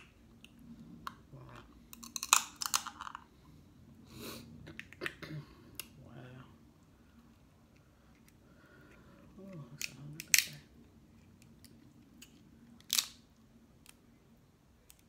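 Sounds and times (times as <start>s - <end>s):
shellfish shell cracking: 1.9s - 3.2s, 9.8s - 10.6s, 11.4s - 13.2s.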